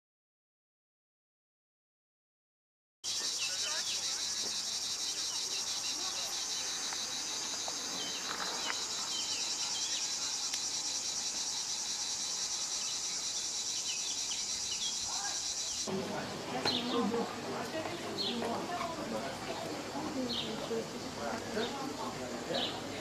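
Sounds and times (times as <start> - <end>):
insects buzzing shrilly: 3.0 - 15.9.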